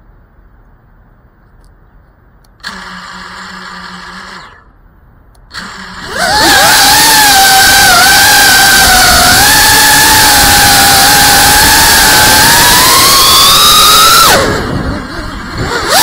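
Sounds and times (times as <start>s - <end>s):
drone motors whining: 2.6s - 4.8s, 5.5s - 16.0s.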